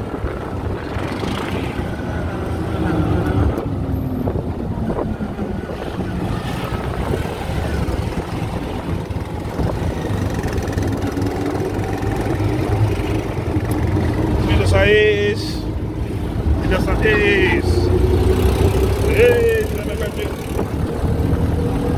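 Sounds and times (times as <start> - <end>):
auto-rickshaw engine running: 0.0 - 21.9
road noise: 0.0 - 21.9.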